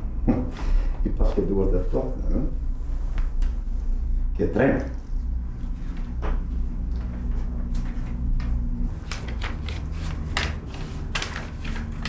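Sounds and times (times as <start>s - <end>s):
low hum: 0.0s - 12.0s
booklet pages rustling: 4.8s - 12.0s.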